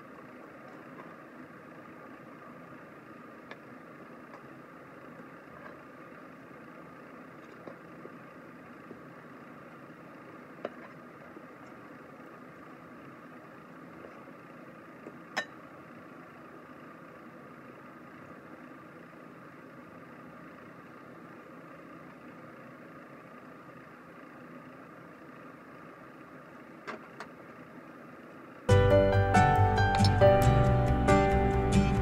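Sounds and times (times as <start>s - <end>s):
faint room hum: 0.0s - 32.0s.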